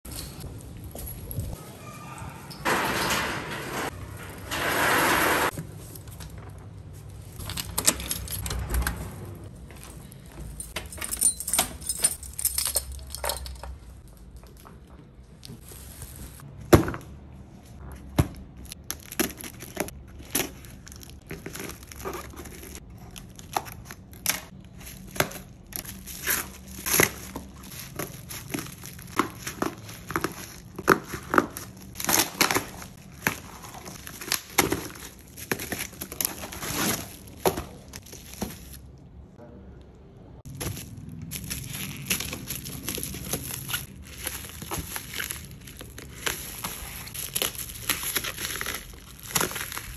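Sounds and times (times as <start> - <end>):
cardboard tearing and crinkling: 18.9 - 38.8, 40.5 - 49.9.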